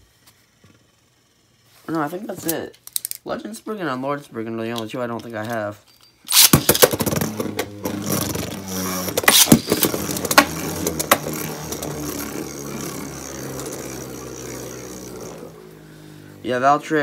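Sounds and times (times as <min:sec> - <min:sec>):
spinning tops whirring: 0:00.0 - 0:03.2, 0:06.3 - 0:17.0
spinning tops clacking together: 0:02.4 - 0:03.3, 0:04.7 - 0:13.9.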